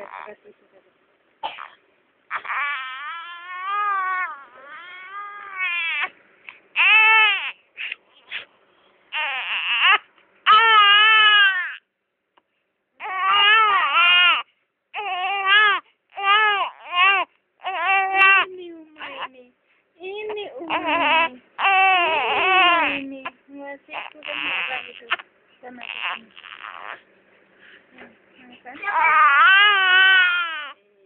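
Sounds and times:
infant crying: 0.0s - 0.4s, 2.3s - 6.1s, 6.8s - 7.6s, 9.1s - 11.8s, 13.0s - 19.3s, 20.3s - 23.1s, 23.9s - 25.2s, 25.8s - 27.0s, 28.8s - 30.8s.

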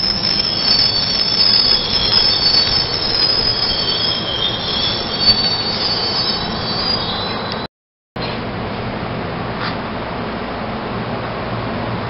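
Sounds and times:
train brakes squealing: 0.0s - 7.7s
train cars rumbling: 0.0s - 7.7s.

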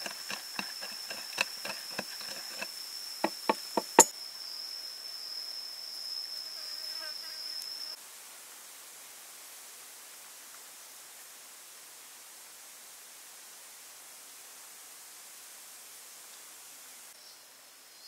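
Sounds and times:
pestle pounding in wooden mortar: 0.0s - 4.1s
high insect buzz: 0.0s - 8.0s.

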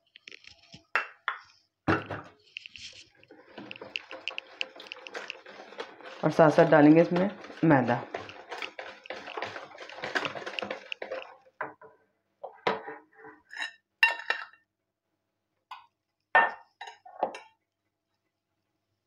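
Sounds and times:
whisk beating batter in a bowl: 3.3s - 11.5s
utensils clinking against bowls: 3.4s - 11.4s.

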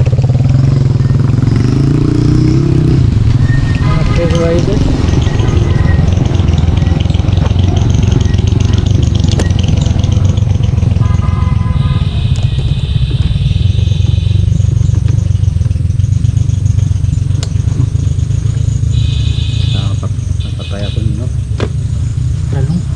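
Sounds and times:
motorcycle engine running: 0.0s - 22.9s
brief higher-pitched tones: 3.4s - 8.8s.

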